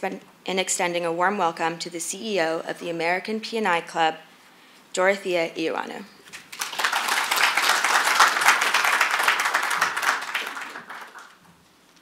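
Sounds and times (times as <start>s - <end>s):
audience applauding: 6.4s - 11.5s.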